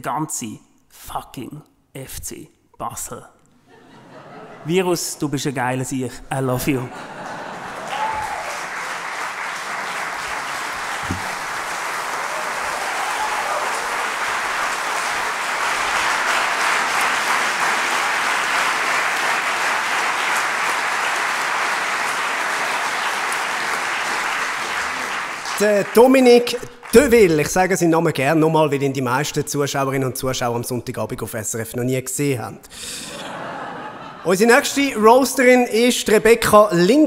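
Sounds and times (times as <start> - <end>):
audience applauding: 7.0 - 27.8.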